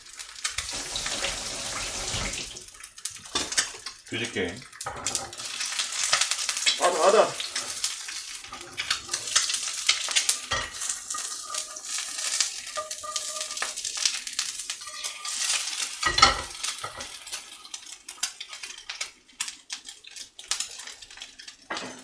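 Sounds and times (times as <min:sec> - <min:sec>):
egg sizzling in frying pan: 0:00.0 - 0:22.0
spatula scraping pan: 0:07.4 - 0:14.1, 0:14.8 - 0:17.1.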